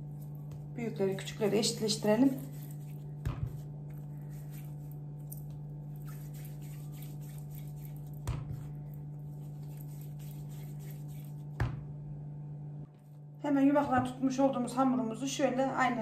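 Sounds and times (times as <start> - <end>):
low hum: 0.0 - 15.2
dough thud on glass: 3.2 - 3.6.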